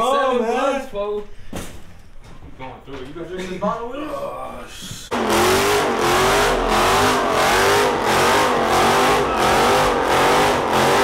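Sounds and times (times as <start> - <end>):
car engine revving: 5.1 - 11.0
tires squealing: 5.1 - 11.0.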